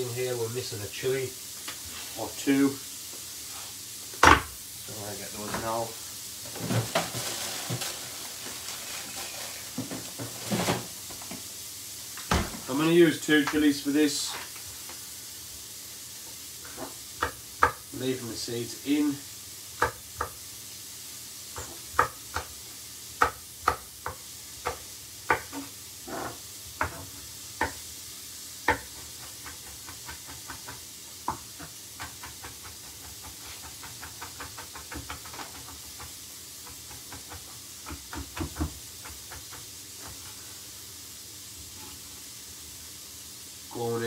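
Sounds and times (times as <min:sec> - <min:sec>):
faint hiss of food frying: 0:00.0 - 0:44.0
knife chopping on wooden board: 0:23.2 - 0:27.8, 0:28.6 - 0:40.3.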